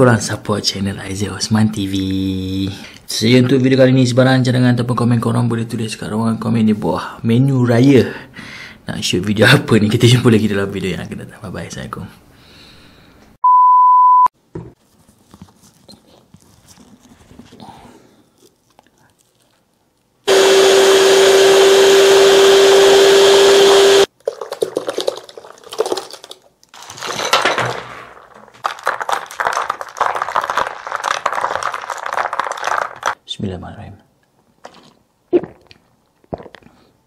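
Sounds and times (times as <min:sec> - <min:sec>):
short high beep: 0:13.4 - 0:14.3
electric hand mixer whining: 0:20.3 - 0:24.1
spoon stirring and sloshing juice: 0:24.1 - 0:26.5.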